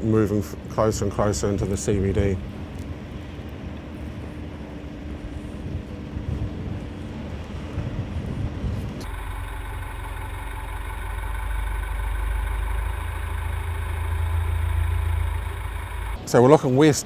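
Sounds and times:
vehicle engine humming: 9.0s - 16.3s.

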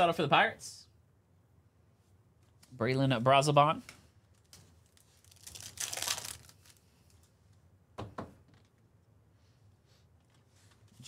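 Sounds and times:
cards rustling: 4.3s - 7.3s
wrapper tearing and crinkling: 4.4s - 6.8s.

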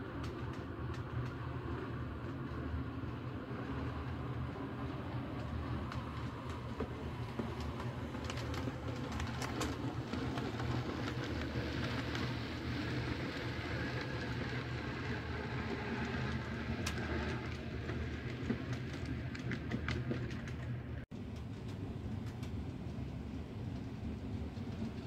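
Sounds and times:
wheels clicking over rail joints: 0.0s - 22.7s
model train wheels rumbling: 0.0s - 25.0s.

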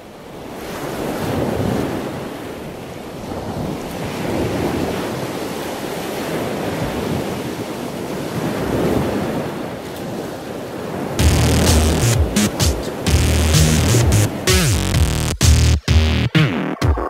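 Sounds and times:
surf on a beach: 0.0s - 14.8s
music with heavy bass: 11.2s - 17.0s.

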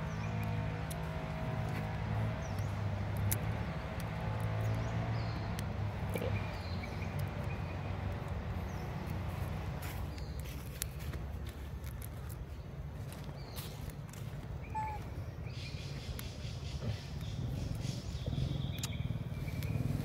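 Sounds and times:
light clicks: 0.4s - 9.3s, 17.2s - 19.8s.

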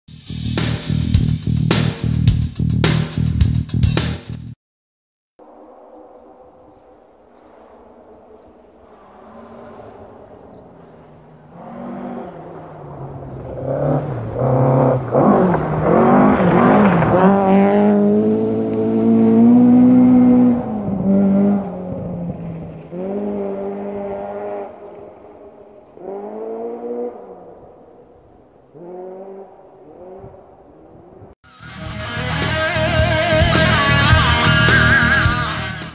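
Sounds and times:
rally car engine revving: 9.0s - 27.7s.

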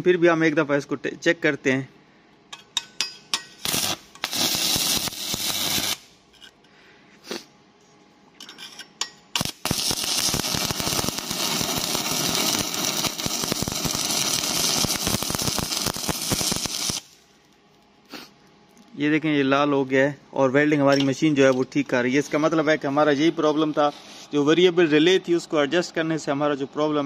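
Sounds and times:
welding arc crackling: 3.6s - 6.2s, 9.4s - 17.3s.

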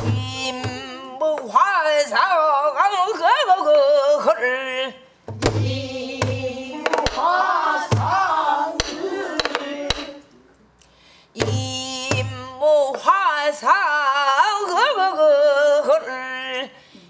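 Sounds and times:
woman singing: 0.0s - 10.2s, 11.4s - 16.8s
barrel drum booms: 5.3s - 10.1s
drumstick clacks on wood: 6.9s - 8.2s, 8.8s - 10.1s.

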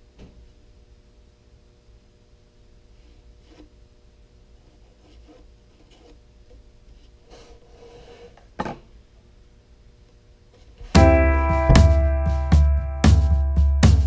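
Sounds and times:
pencil scratching on wood: 4.6s - 6.2s.

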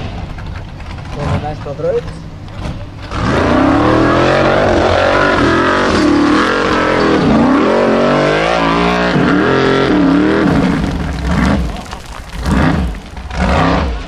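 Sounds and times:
buggy engine revving hard: 2.6s - 14.0s
wheels spinning throwing dirt: 4.8s - 14.0s.

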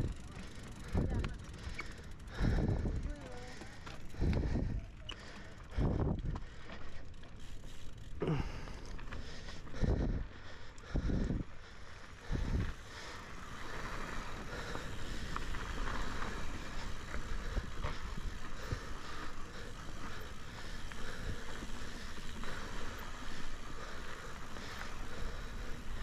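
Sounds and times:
bike rattling and clicking: 0.0s - 26.0s
bike tyres rolling on dirt: 0.0s - 26.0s.

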